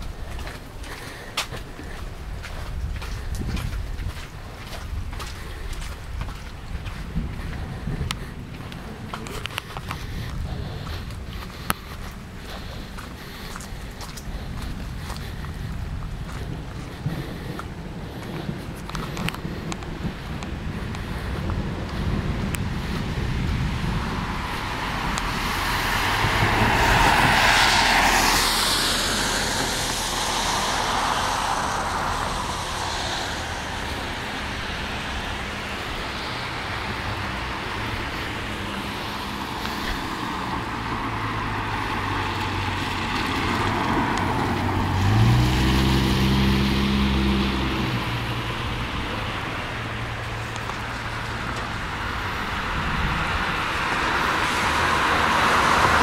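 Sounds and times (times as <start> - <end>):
road noise on wet street: 0.0 - 56.0
vehicle engine hum: 0.0 - 56.0
wind: 0.0 - 56.0.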